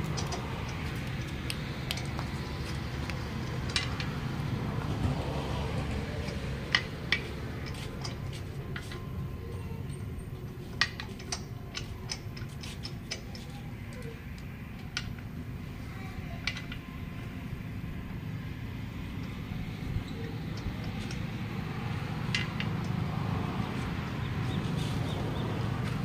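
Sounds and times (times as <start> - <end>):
metallic clicks of wheel nuts: 0.0 - 4.3, 5.6 - 9.1, 9.9 - 15.3, 20.0 - 25.0.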